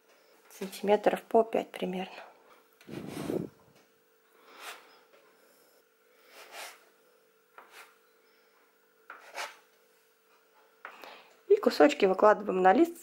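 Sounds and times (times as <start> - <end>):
scraper cutting dough on board: 6.3 - 6.9, 7.5 - 8.0, 9.1 - 9.7.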